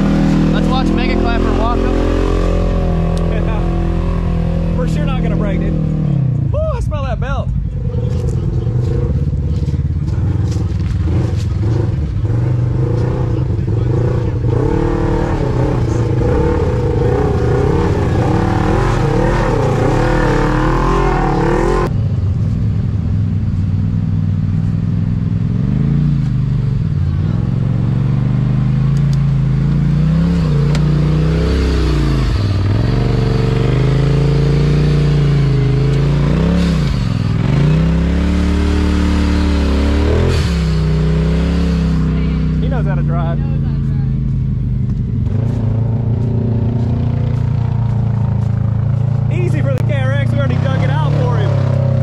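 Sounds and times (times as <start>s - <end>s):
off-road vehicle engines revving: 0.0s - 52.0s.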